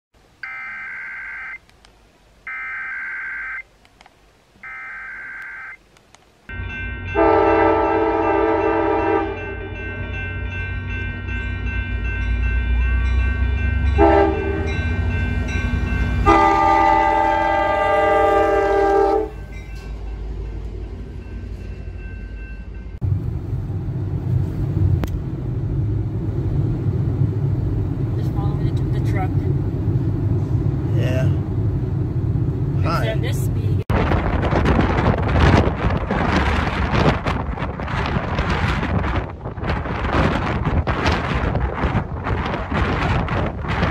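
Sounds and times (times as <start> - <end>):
screeching data-tone bursts: 0.4 - 1.6, 2.5 - 3.6, 4.6 - 5.8
train horn: 7.1 - 9.8, 13.9 - 14.8, 16.1 - 19.4
outdoor rumble: 22.6 - 43.9.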